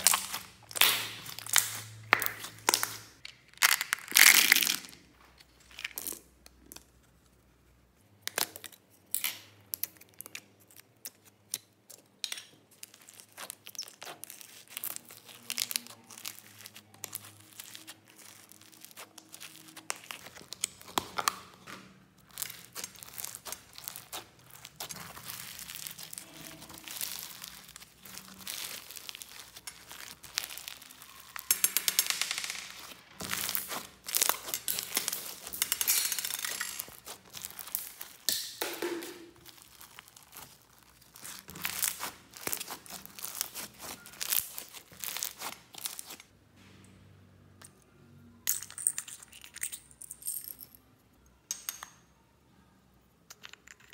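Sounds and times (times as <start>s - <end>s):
foam beads crackling: 0.0s - 5.0s, 12.7s - 21.6s, 22.2s - 46.3s
slime popping and squelching: 0.0s - 5.0s, 12.7s - 46.3s.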